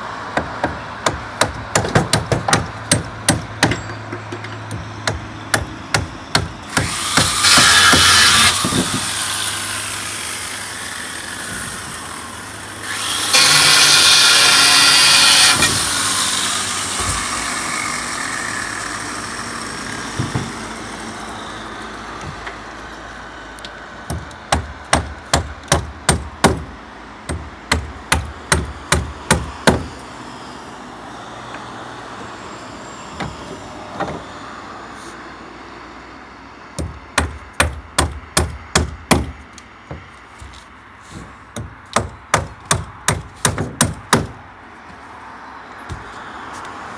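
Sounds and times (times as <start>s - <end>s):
traffic passing: 0.0s - 46.9s
hammer driving nails into wood: 5.1s - 9.0s, 41.2s - 44.4s.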